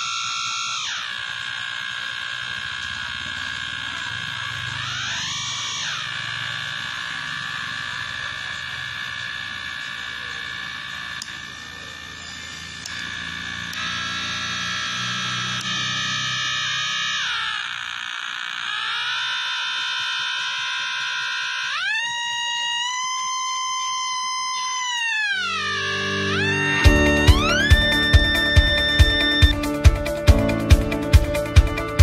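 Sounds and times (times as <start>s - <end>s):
electronic tone gliding up and down: 0.0s - 32.0s
electronic tones through small speaker: 25.4s - 29.7s.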